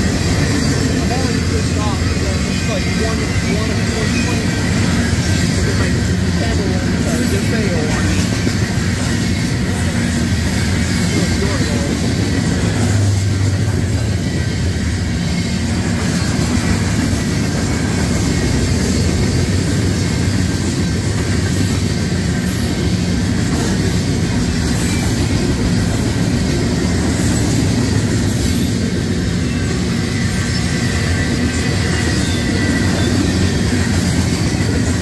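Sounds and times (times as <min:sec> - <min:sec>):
train wheels rumbling on rails: 0:00.0 - 0:35.0.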